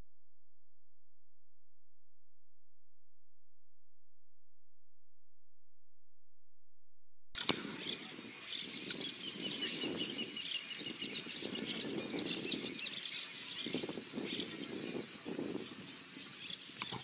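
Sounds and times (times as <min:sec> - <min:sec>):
songbirds singing: 0:07.4 - 0:17.0.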